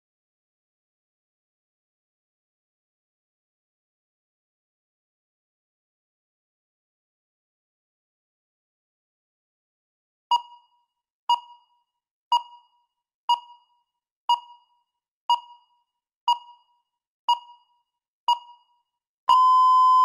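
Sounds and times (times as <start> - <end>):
countdown timer beeps: 10.3 - 20.0
long timer beep: 19.3 - 20.0.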